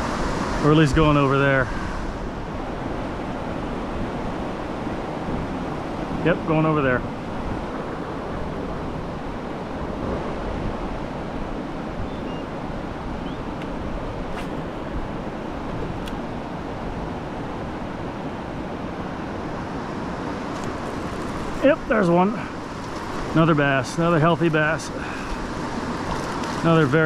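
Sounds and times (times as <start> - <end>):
river rapids rushing over rocks: 16.3 - 27.0.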